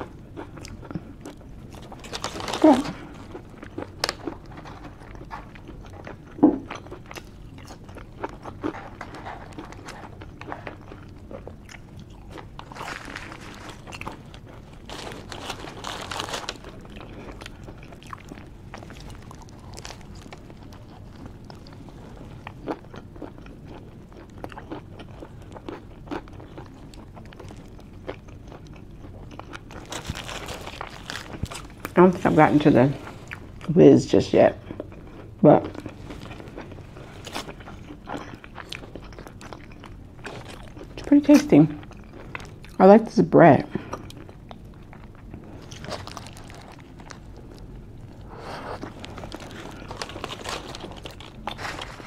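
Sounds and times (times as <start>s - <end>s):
person chewing and lip-smacking: 0.0s - 32.0s, 34.6s - 42.8s
rustling: 48.4s - 52.0s.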